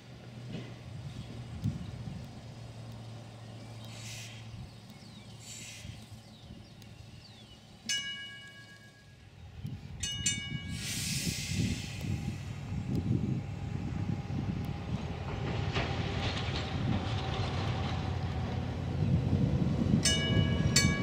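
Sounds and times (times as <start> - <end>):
hissing air: 3.7 - 7.8, 10.6 - 13.6
train air whistle blasts: 10.7 - 12.4.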